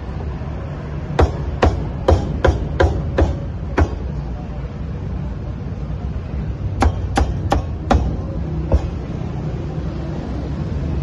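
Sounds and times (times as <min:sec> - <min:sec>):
low background rumble: 0:00.0 - 0:11.0
cleaver chopping on wooden block: 0:01.2 - 0:04.1.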